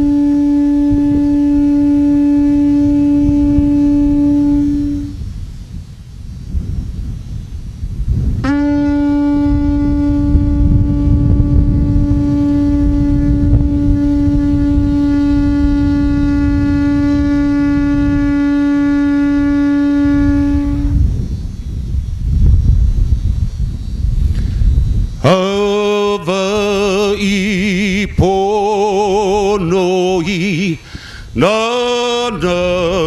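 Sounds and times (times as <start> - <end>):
conch shell trumpet long note: 0.0 - 5.3, 8.4 - 21.2, 25.2 - 33.0.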